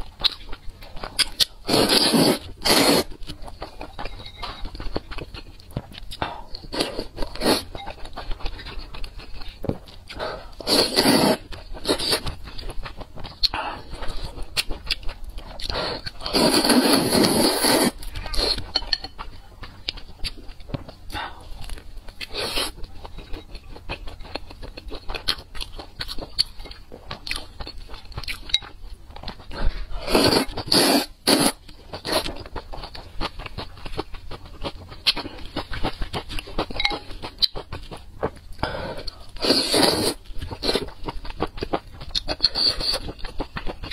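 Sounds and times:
wet chewing: 0:00.0 - 0:43.9
noodle slurping: 0:01.7 - 0:03.1, 0:10.6 - 0:12.2, 0:16.2 - 0:18.6, 0:30.0 - 0:32.2, 0:39.4 - 0:40.2.

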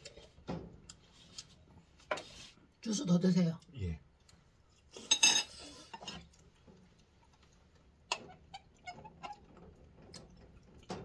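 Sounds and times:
glass clinking: 0:05.1 - 0:05.5.

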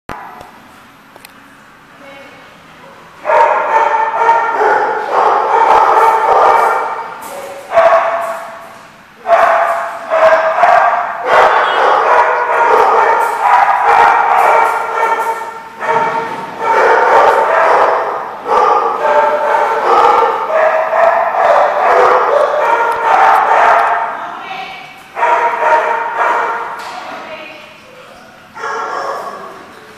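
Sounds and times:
dogs barking and yipping: 0:03.2 - 0:08.6, 0:09.2 - 0:24.1, 0:25.1 - 0:26.8, 0:28.6 - 0:29.6.

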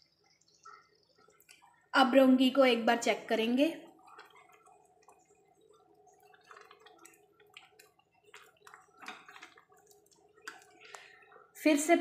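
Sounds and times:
curry bubbling: 0:00.0 - 0:12.0.

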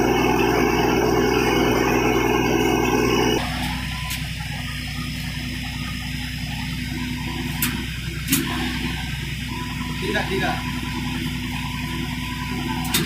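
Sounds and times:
loud machine noise: 0:00.0 - 0:04.0
machinery hum: 0:00.0 - 0:13.0.

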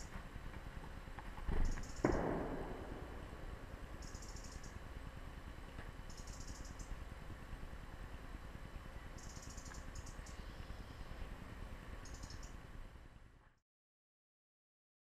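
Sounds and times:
high pulsing bird trills: 0:01.6 - 0:02.4, 0:03.8 - 0:04.8, 0:06.0 - 0:07.0, 0:08.9 - 0:11.2, 0:12.0 - 0:12.6.

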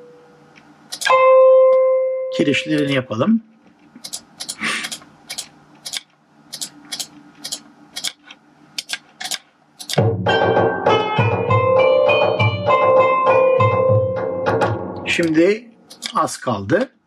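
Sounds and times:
mouse and keyboard clicks: 0:04.0 - 0:10.0
synthesized melody playback: 0:10.1 - 0:15.0.

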